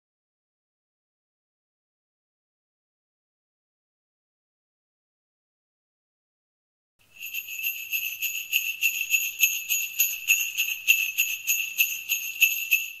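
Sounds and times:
sleigh bells shaking: 7.1 - 13.0.

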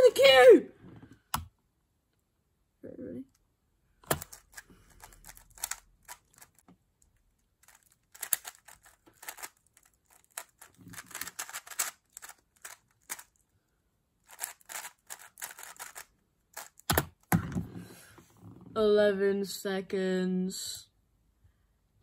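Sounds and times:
puzzle cube clicking: 4.0 - 13.3, 14.3 - 17.4.

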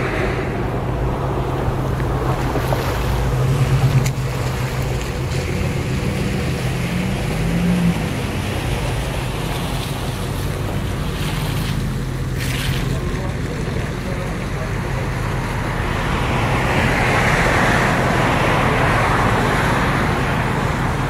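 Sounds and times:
wind noise on microphone: 0.0 - 7.0
car engines running: 0.0 - 21.0
water sloshing and splashing: 1.1 - 14.3.

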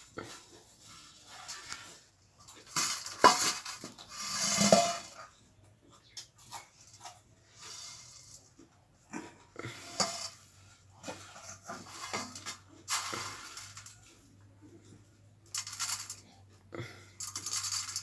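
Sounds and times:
puffed rice rustling: 11.1 - 14.2.

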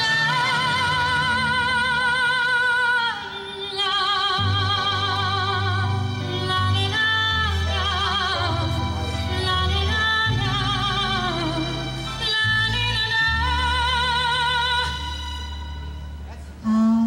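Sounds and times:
woman singing through microphone: 0.0 - 16.0, 16.6 - 17.0
low bass accompaniment: 4.3 - 17.0.

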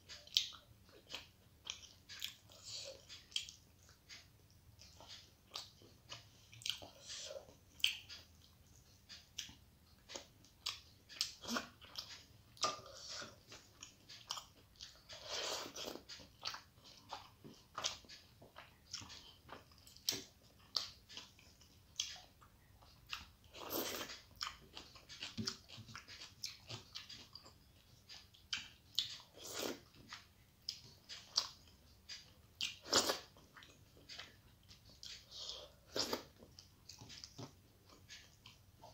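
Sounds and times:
person chewing with mouth clicks: 0.0 - 38.9.

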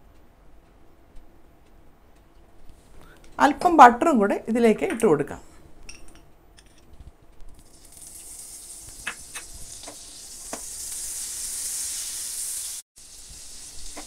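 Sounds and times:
butter sizzling in a frying pan: 7.6 - 14.0.

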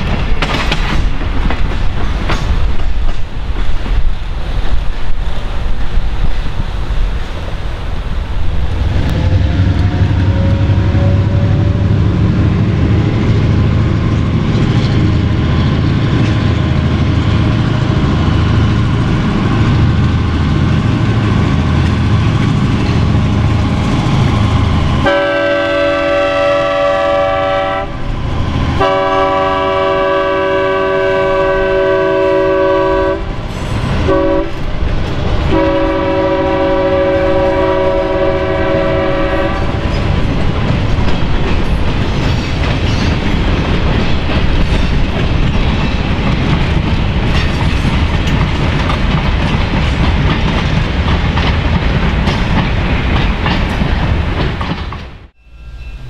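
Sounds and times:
diesel locomotive running: 0.0 - 56.0
train air horn blasts: 9.1 - 12.2, 25.0 - 28.1, 28.8 - 34.6, 35.5 - 39.9.

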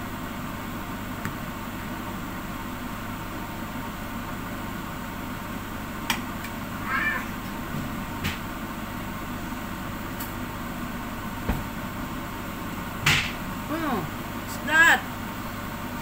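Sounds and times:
short wavering pitched cries: 6.8 - 7.4.

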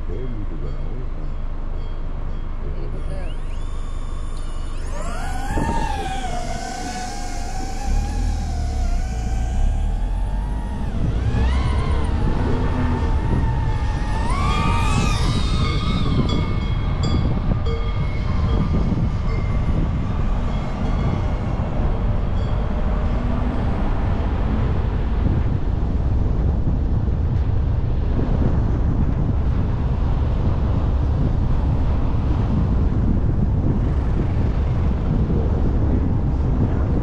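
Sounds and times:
wavering whine: 0.0 - 25.0
vehicle rumble: 0.0 - 37.0.

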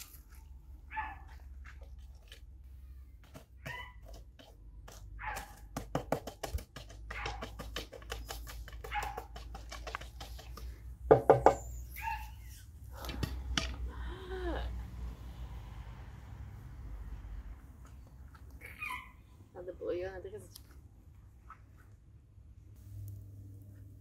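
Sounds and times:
dog barking and whining: 0.9 - 1.3, 3.6 - 4.1, 5.2 - 5.6, 11.8 - 12.6, 18.6 - 19.3.

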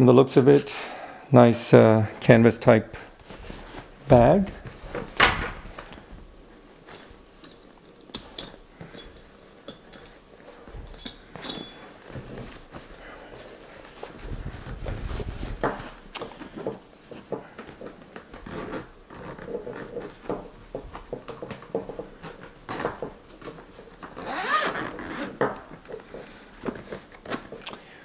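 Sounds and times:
fabric rustling: 2.9 - 27.6
zipper pulled open on canvas bag: 24.1 - 25.4.

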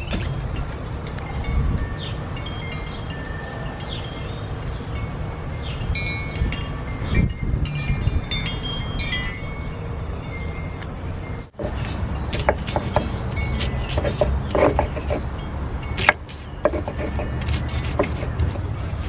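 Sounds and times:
light ringing tinkles: 0.0 - 12.5
wind rumble on microphone: 0.0 - 19.0.

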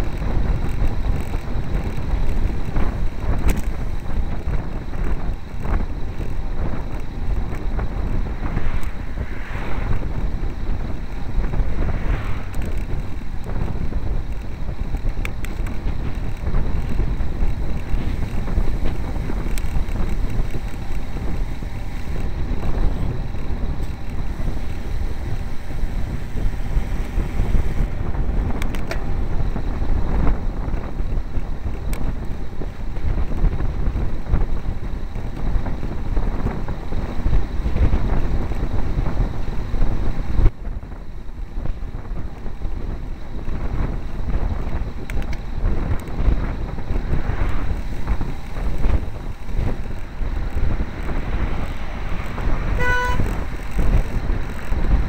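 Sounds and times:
wind buffeting microphone: 0.0 - 55.0
faint clicks: 28.5 - 29.1, 44.6 - 46.2.

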